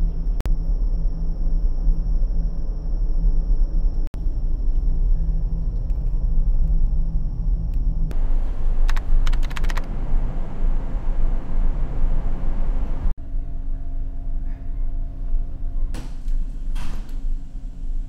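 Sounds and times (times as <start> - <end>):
ship engine rumble: 8.1 - 13.2
keyboard typing clicks: 8.8 - 9.9.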